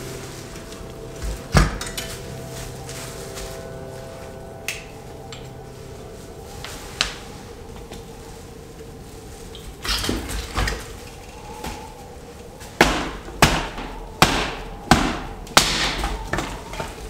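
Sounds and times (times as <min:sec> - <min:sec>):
sticks knocking and rustling: 0:00.0 - 0:17.0
hatchet chopping branches: 0:12.7 - 0:17.0.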